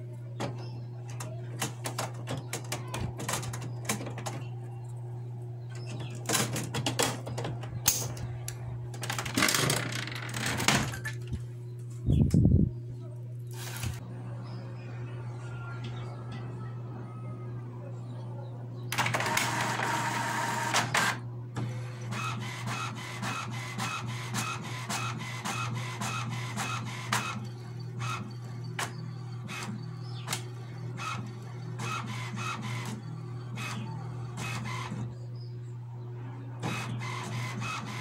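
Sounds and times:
printer mechanical noise: 0.0 - 10.9, 18.9 - 35.6, 36.5 - 38.0
print carriage clicking: 0.4 - 4.6, 18.9 - 35.1, 36.6 - 38.0.

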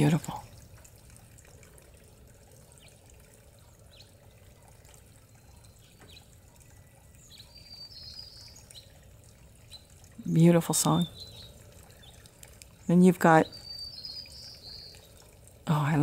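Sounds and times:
faint fountain water trickling: 0.0 - 16.0
high bird song: 2.7 - 3.0, 3.6 - 16.0
soft bird chirps: 2.7 - 15.4.

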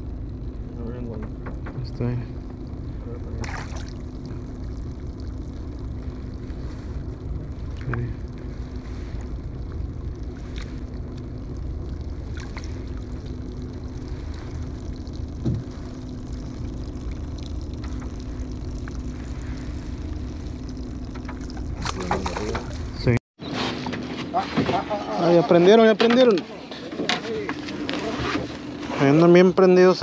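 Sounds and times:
low rumble: 0.0 - 23.2
faint hum: 0.0 - 30.0
low thump: 15.4 - 15.8.

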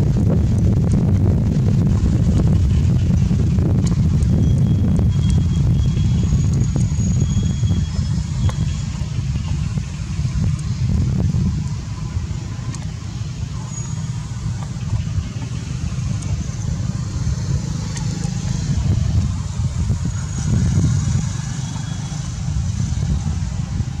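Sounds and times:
low rumble: 0.0 - 24.0
light ticks: 12.7 - 13.0.

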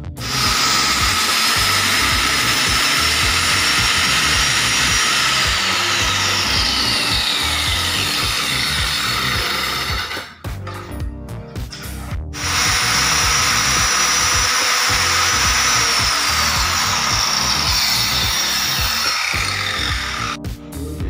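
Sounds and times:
electric saw cutting wood: 0.2 - 10.6, 12.4 - 20.4.

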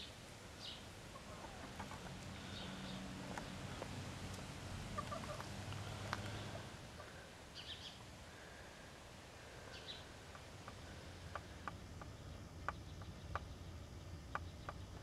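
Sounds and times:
chickens clucking: 1.1 - 3.9, 4.9 - 8.1, 9.8 - 13.6.

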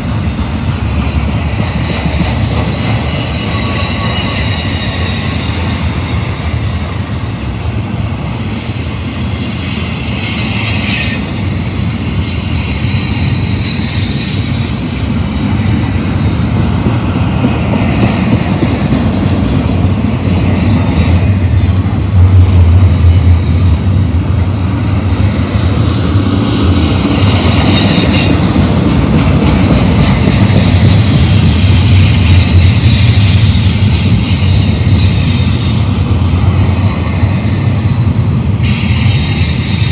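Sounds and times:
train wheels rumbling on rail: 0.0 - 39.9
high-pitched wheel squeal: 2.8 - 5.8, 9.7 - 11.4.

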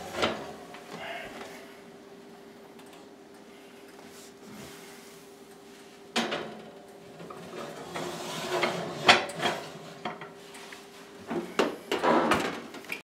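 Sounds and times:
ceramic dishes scraping on metal rack: 7.2 - 10.3.

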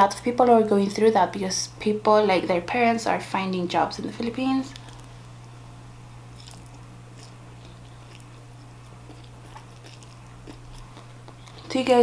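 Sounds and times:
person chewing noodles: 6.3 - 11.8.

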